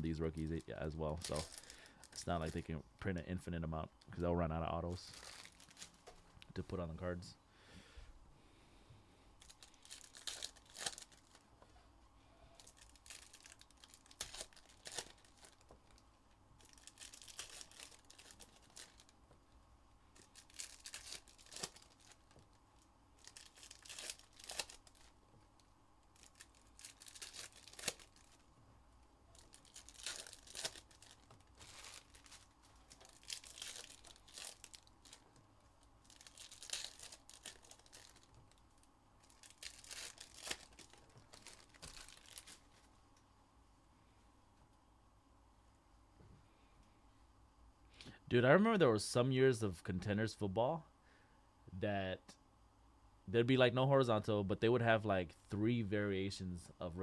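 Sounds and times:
plastic wrappers crinkling and tearing: 0.1s - 2.6s, 5.0s - 6.7s, 9.4s - 11.4s, 12.5s - 19.2s, 20.1s - 28.5s, 29.3s - 35.4s, 36.0s - 42.9s.

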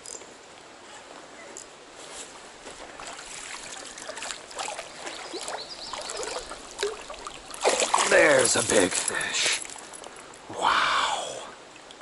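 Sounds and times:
stream water trickling: 0.0s - 0.9s, 1.6s - 12.0s
small water splashes: 2.7s - 10.5s
man talking: 7.9s - 9.6s.

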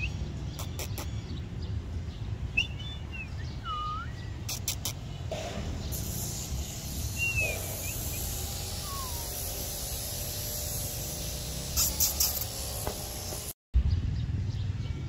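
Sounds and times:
bird chirps: 0.0s - 10.0s.

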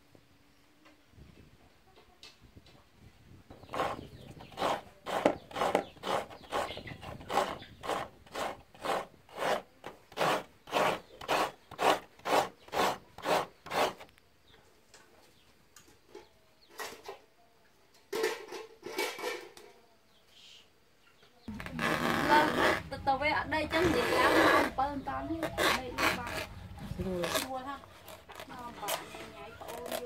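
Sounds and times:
coconut grating rasping: 3.6s - 14.1s, 21.5s - 23.0s, 23.7s - 24.8s, 25.4s - 30.0s
scattered scrapes: 3.6s - 14.1s, 21.5s - 23.1s, 23.7s - 30.0s.

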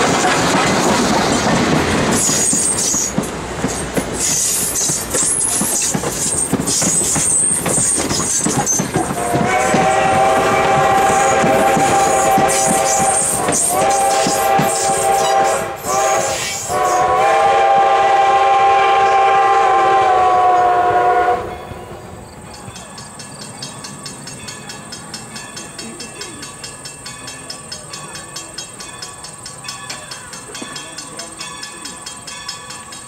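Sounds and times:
steam locomotive whistle: 4.2s - 21.9s.

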